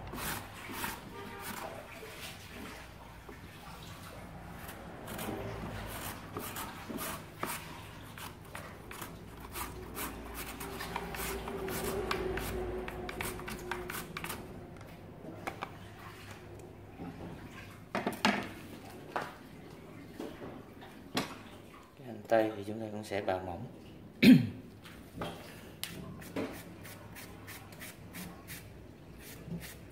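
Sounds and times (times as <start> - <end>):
carrot scraping on mandoline: 0.1 - 1.9, 4.6 - 14.5.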